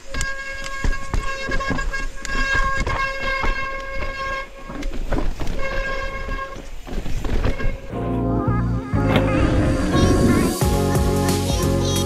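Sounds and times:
bike tyres and frame rattling: 0.0s - 8.2s
bike freehub buzzing: 0.0s - 10.9s.

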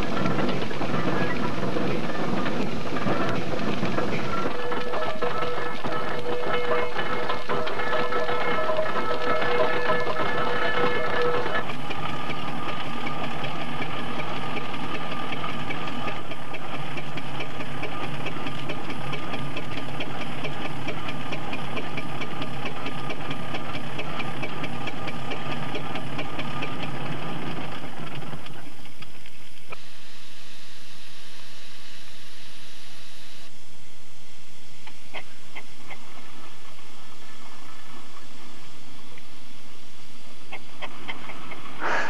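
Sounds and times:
steam engine winch clatter: 0.0s - 29.0s.

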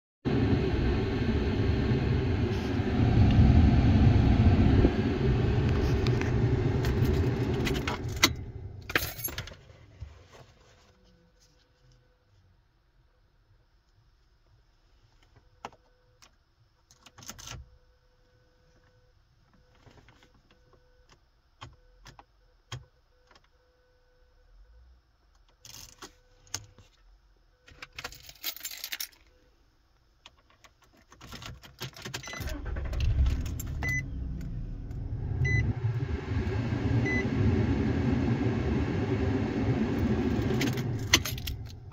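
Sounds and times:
car engine starting and idling: 0.3s - 9.5s, 32.0s - 41.9s
keys jangling in ignition: 7.0s - 9.6s, 27.8s - 29.3s.

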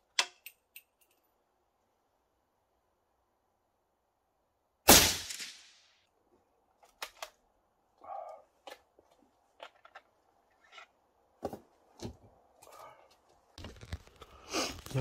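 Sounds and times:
rifle shot echoing: 4.9s - 5.8s.

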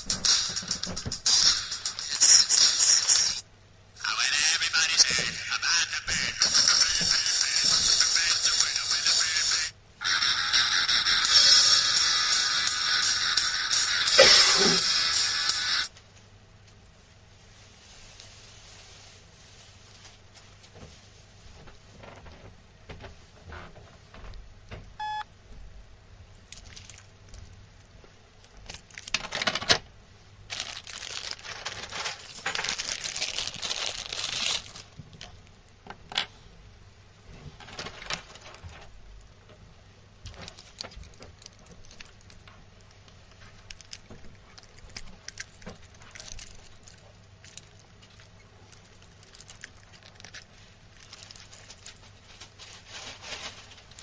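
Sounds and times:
rustling: 16.0s - 24.2s, 30.5s - 35.2s, 40.3s - 54.0s
short electronic beep: 25.0s - 25.3s.

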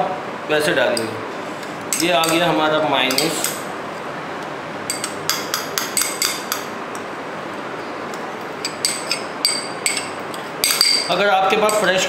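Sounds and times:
spoon clinking on glass bowl: 8.4s - 11.9s.

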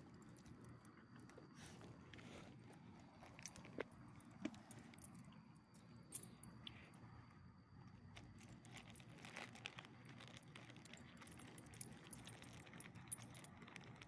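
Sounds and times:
leashes and collars clicking: 10.4s - 14.0s.

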